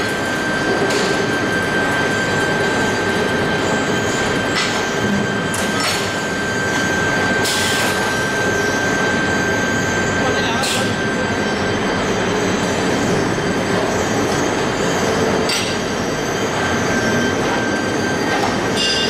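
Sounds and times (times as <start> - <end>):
machine drone with high tone: 0.0 - 19.0.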